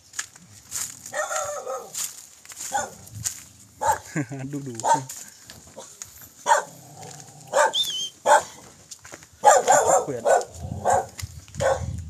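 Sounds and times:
dog barking: 1.1s - 2.0s, 2.7s - 3.0s, 3.8s - 4.0s, 4.8s - 5.1s, 5.8s - 8.6s, 9.4s - 12.0s.

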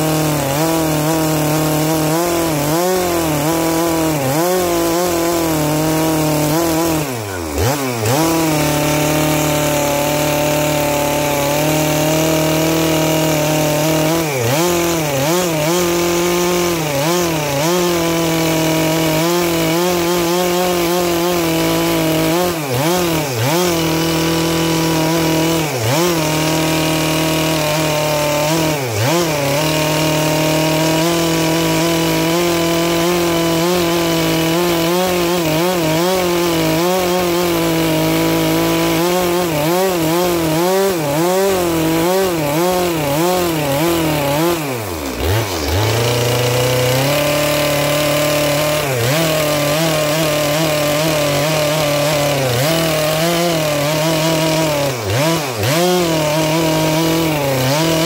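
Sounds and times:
chainsaw cutting through log: 0.0s - 58.0s.

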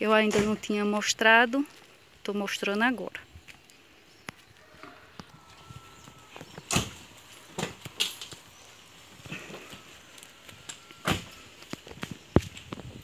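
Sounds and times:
footsteps on dry earth: 1.2s - 13.0s.

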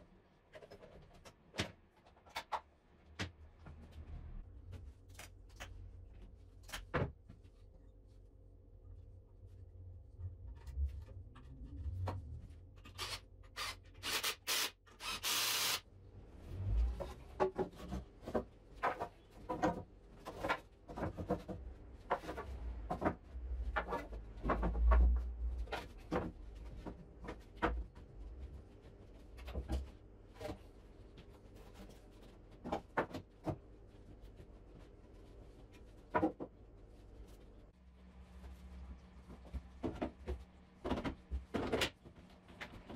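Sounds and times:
short harsh bursts: 13.6s - 15.8s.

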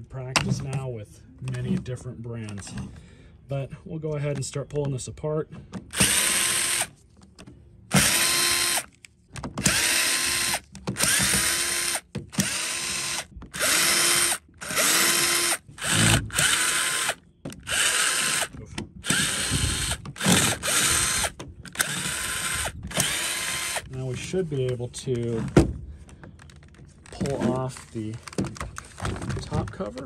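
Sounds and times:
cordless drill whining: 5.9s - 6.9s, 7.9s - 9.0s, 9.6s - 23.9s.

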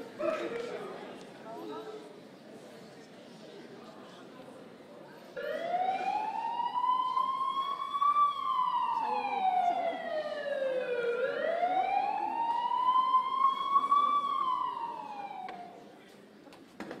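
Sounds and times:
ambulance siren wailing: 5.4s - 15.8s.

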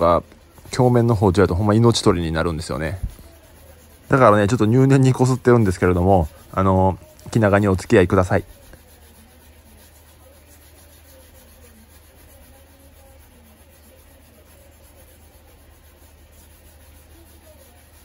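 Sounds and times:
rubber pad rubbing knife: 0.0s - 18.0s.

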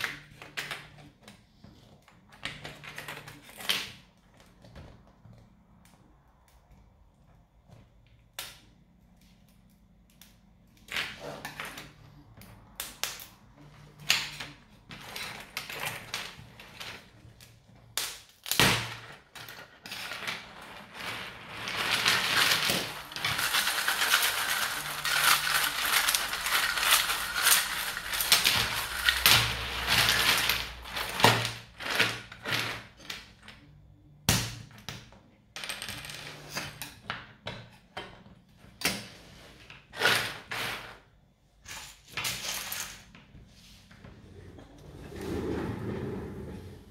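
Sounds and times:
crackling and scraping: 0.0s - 33.8s.

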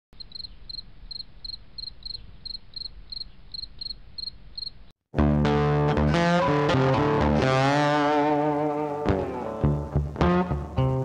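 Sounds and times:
cricket chirping: 0.2s - 4.9s.

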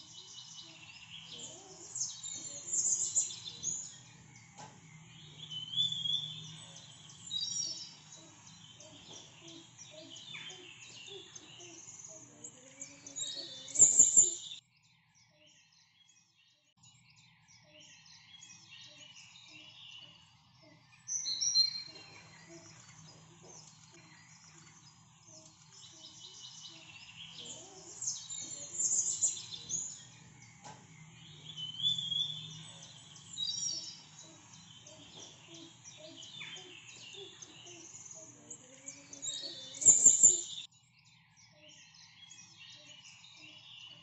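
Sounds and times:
small birds chirping: 0.0s - 44.0s
faint low hum: 22.0s - 40.4s.

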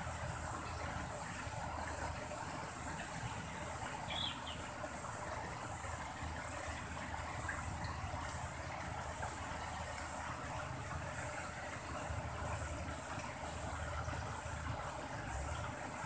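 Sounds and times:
background hiss and rumble: 0.0s - 16.0s
insect calling in pulses: 4.0s - 4.6s.

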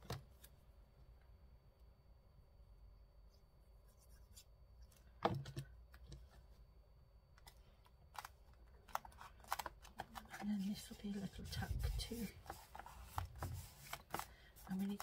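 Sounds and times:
paper and tools scratching: 9.0s - 15.0s.

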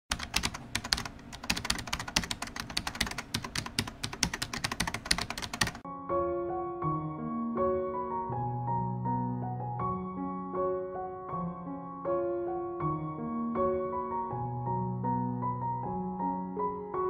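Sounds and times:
rapid keyboard typing: 0.1s - 5.8s
piano music: 0.1s - 17.0s.

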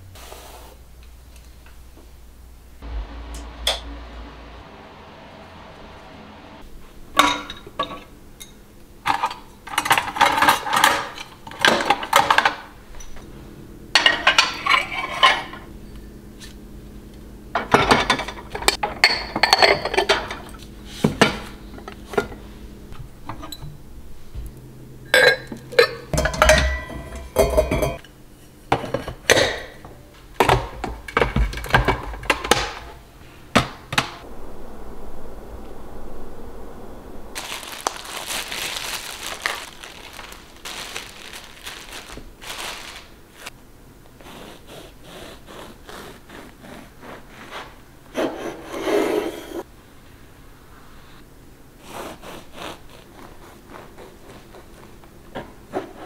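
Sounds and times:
ceramic dishes clinking: 25.2s - 28.1s.

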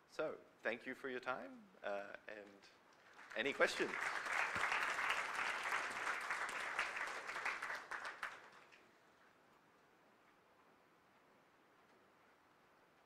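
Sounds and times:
audience applauding: 3.1s - 8.8s.

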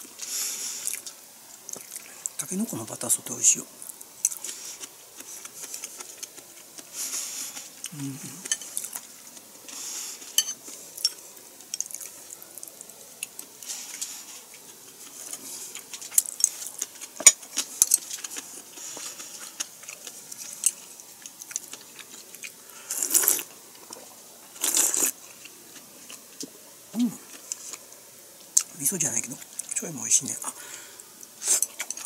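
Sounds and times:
breathing: 0.2s - 0.9s, 9.7s - 10.4s, 22.6s - 23.1s, 30.6s - 31.1s
chewing: 0.2s - 2.4s, 3.8s - 28.8s, 31.2s - 32.0s
slurping soup: 22.8s - 23.5s.

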